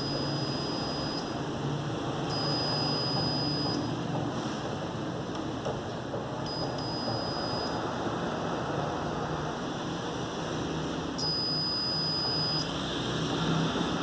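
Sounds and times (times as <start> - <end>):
multimeter continuity beep: 0.0 - 1.5, 2.2 - 4.0, 6.5 - 7.8, 11.2 - 12.8.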